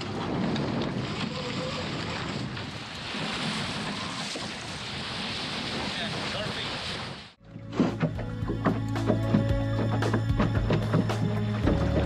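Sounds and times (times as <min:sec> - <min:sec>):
wind buffeting microphone: 0:00.0 - 0:06.2
water splashing along hull: 0:00.0 - 0:12.0.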